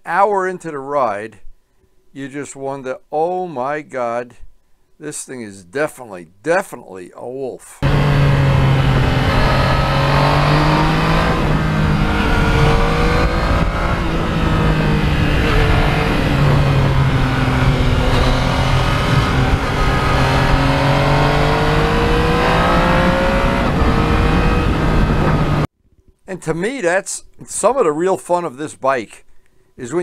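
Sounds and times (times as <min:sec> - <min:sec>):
motorcycle engine accelerating: 0:07.8 - 0:25.7.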